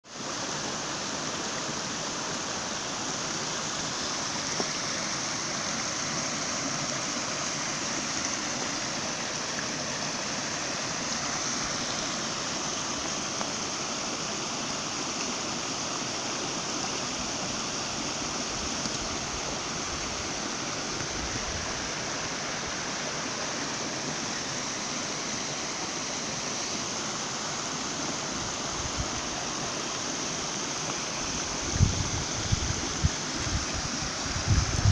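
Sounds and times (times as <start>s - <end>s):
river rushing over rocks: 0.1s - 34.9s.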